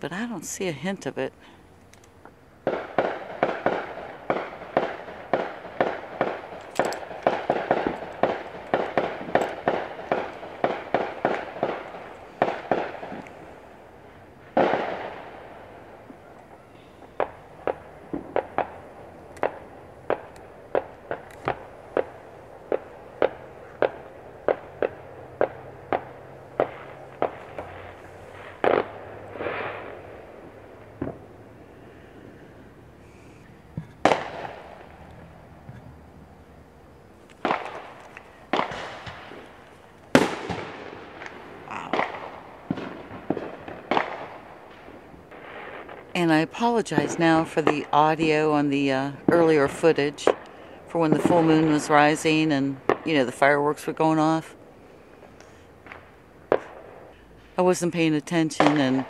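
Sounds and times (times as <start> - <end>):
fireworks banging with echo: 2.6 - 32.7, 33.7 - 35.0, 37.4 - 54.6, 55.2 - 59.0.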